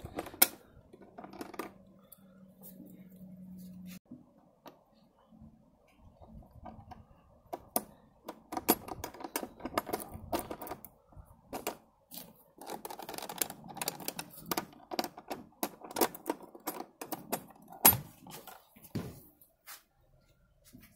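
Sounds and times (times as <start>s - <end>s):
plastic and metal clicks and knocks: 6.5s - 11.9s.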